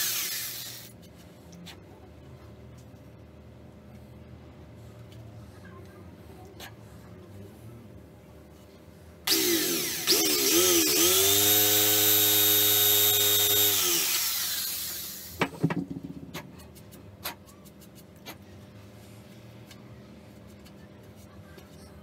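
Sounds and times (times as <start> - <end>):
electric drill boring wood: 0.0 - 0.9, 9.3 - 15.4.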